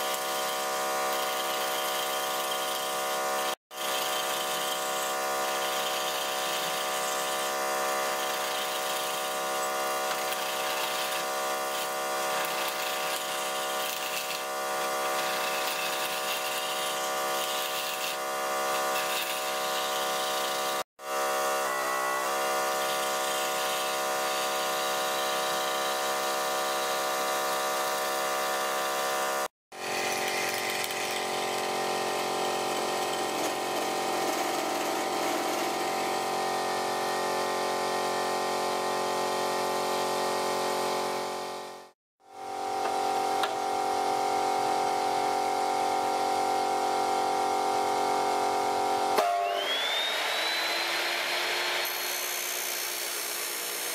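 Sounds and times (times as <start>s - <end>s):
chisel scraping spinning wood: 0.1s - 20.8s
wood lathe motor whine: 0.1s - 53.9s.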